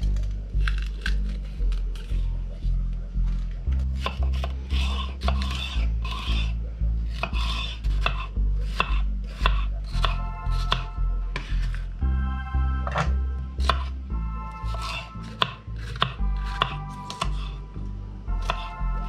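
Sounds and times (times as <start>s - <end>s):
knife chopping on wooden board: 4.0s - 6.5s, 7.1s - 11.8s, 12.8s - 13.9s, 14.7s - 17.5s
background music with beat: 8.8s - 19.0s.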